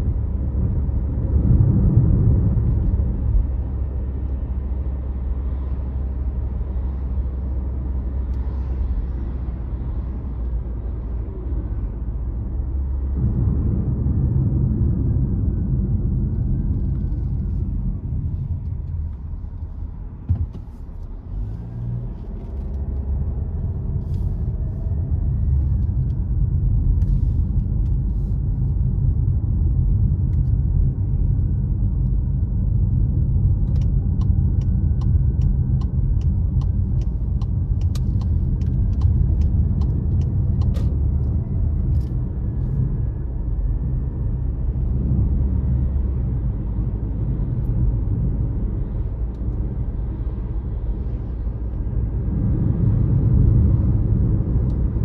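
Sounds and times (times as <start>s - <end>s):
car engine and tyres rumbling: 0.0s - 55.0s.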